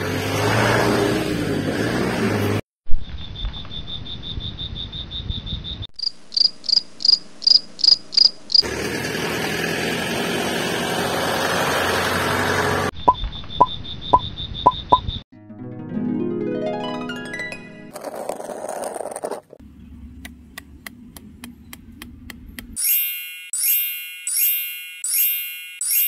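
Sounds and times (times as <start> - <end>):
crickets chirping: 3.2 - 8.6, 13.2 - 15.2.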